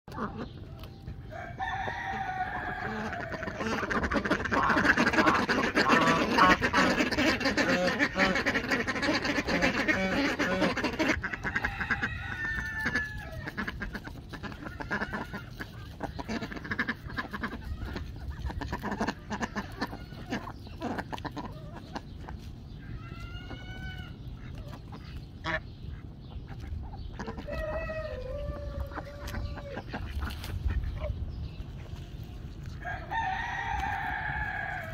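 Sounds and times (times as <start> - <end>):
chickens clucking: 0.1 - 34.9
ducks calling: 0.1 - 34.9
rooster crowing: 1.3 - 3.6, 11.4 - 13.4, 27.2 - 29.8, 32.8 - 34.9.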